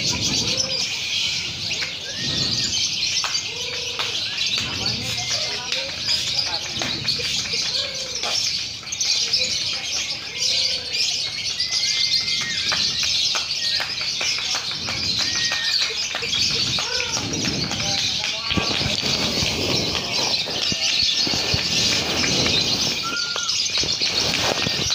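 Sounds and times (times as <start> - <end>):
lovebirds chattering: 0.0 - 24.9
short whistled bird notes: 21.0 - 24.9.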